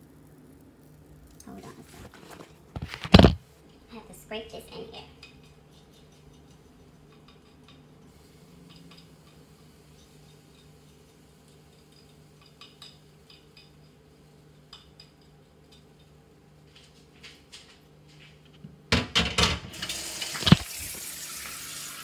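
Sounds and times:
batter frying hiss: 0.0s - 2.8s, 3.5s - 18.5s, 19.7s - 22.0s
utensil clinking against bowl: 5.2s - 8.0s, 8.6s - 14.0s.

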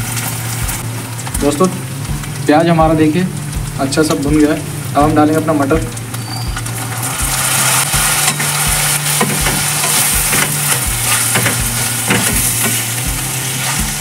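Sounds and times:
vegetables sizzling in butter: 0.0s - 14.0s
spatula scraping and knocking pan: 6.6s - 14.0s.

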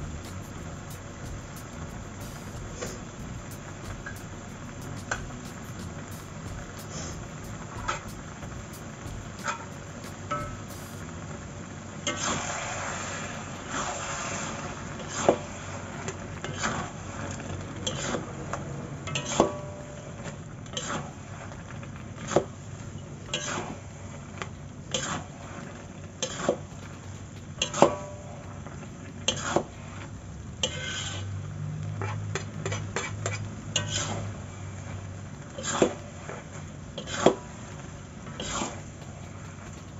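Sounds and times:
low steady hiss: 0.0s - 39.9s
spatula scraping a metal wok: 33.8s - 34.2s.

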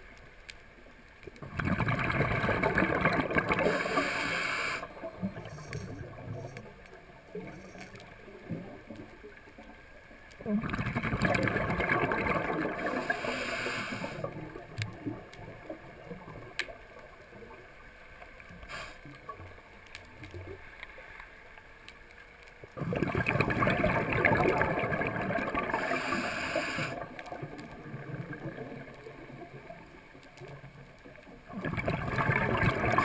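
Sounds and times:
diver exhaling bubbles: 1.4s - 6.3s, 10.5s - 15.2s, 22.8s - 28.9s, 31.5s - 33.0s.

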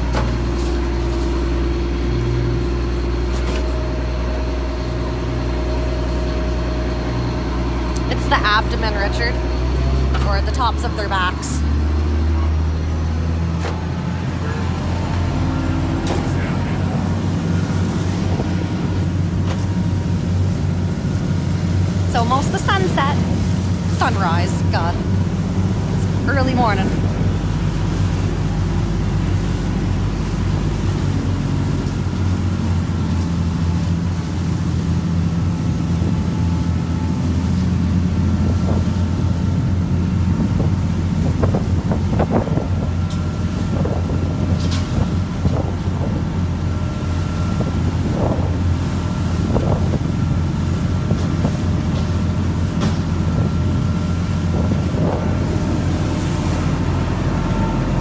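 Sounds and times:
boat engine humming: 0.0s - 58.0s
wind on the microphone: 38.4s - 46.5s, 47.3s - 51.9s, 53.2s - 56.5s.

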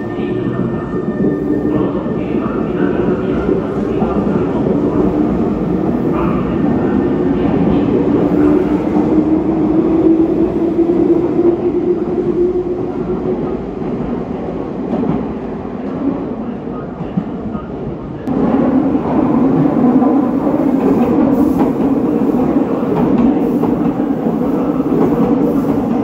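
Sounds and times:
train wheels rumbling: 18.3s - 26.0s.

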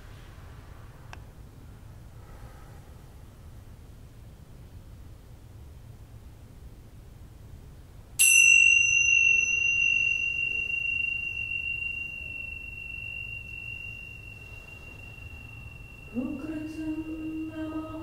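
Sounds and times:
bell-like chime ringing: 8.2s - 18.0s.

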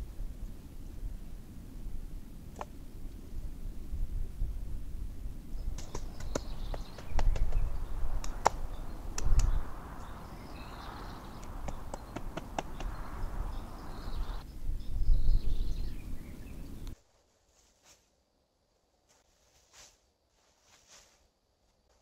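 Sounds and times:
dull low bumps: 4.2s - 14.4s
faint bird chirps: 5.5s - 17.0s
wooden sticks knocking together: 5.8s - 7.6s.

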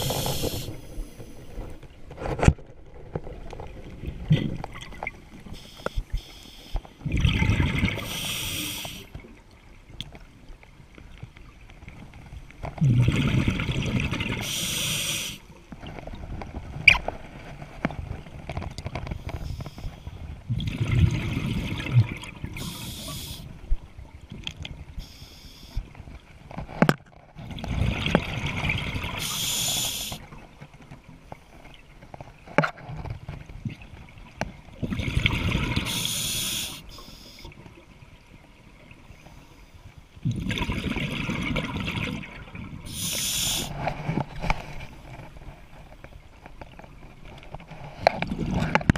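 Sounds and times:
regulator hiss: 0.0s - 1.2s, 8.0s - 9.1s, 14.5s - 15.4s, 22.6s - 23.5s, 29.2s - 30.2s, 35.9s - 37.4s, 42.9s - 43.7s
exhaled bubbles rumbling: 0.0s - 5.5s, 7.0s - 8.2s, 12.7s - 14.5s, 20.2s - 23.0s, 27.4s - 29.4s, 33.5s - 36.0s, 40.2s - 45.7s.

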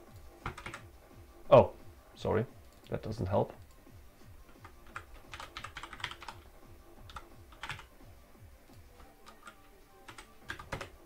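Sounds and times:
computer keyboard typing: 0.1s - 0.9s, 4.5s - 7.9s, 9.0s - 11.0s.

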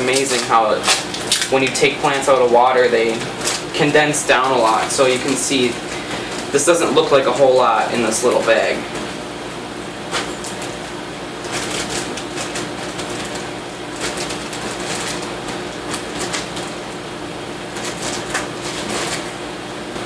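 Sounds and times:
plastic and newspaper crinkling: 0.0s - 8.8s, 11.4s - 16.9s, 17.7s - 19.4s
steady low hum: 0.0s - 20.0s.

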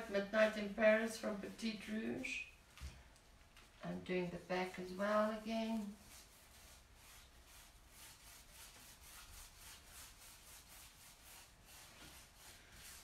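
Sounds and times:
paintbrush strokes: 0.0s - 13.0s.

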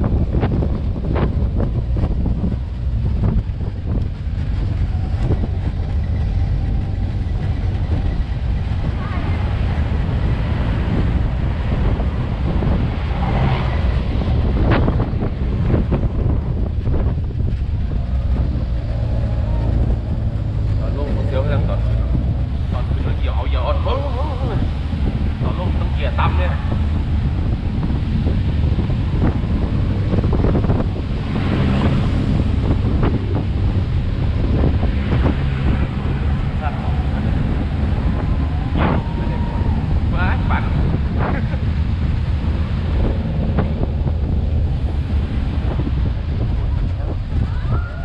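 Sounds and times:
truck rumbling on dirt road: 0.0s - 48.0s
wind buffeting microphone: 0.0s - 48.0s.

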